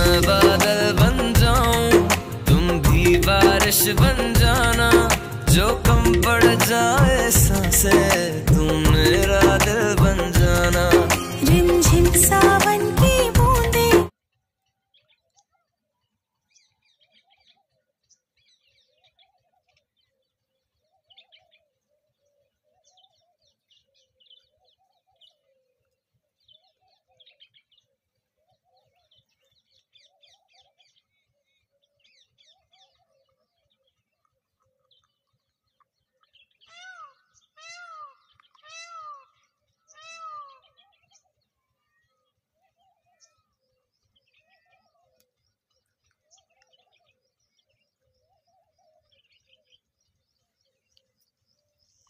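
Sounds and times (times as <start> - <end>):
small birds chirping: 14.3 - 52.0
drawn-out rising falling bird calls: 36.1 - 45.4.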